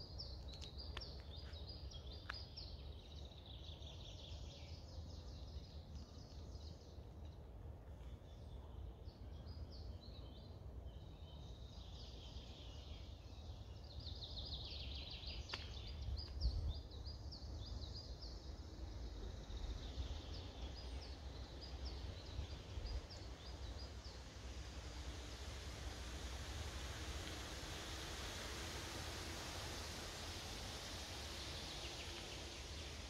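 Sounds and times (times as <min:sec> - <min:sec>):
songbirds singing: 0:00.0 - 0:25.1.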